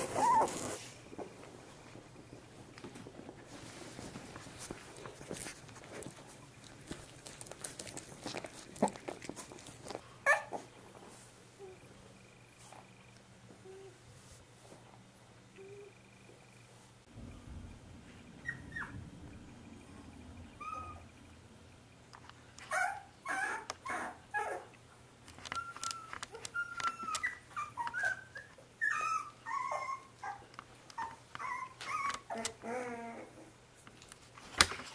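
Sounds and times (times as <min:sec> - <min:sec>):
puppies whimpering and squeaking: 0:00.0 - 0:01.5, 0:18.4 - 0:19.0, 0:20.5 - 0:21.1, 0:22.7 - 0:24.7, 0:25.4 - 0:33.5.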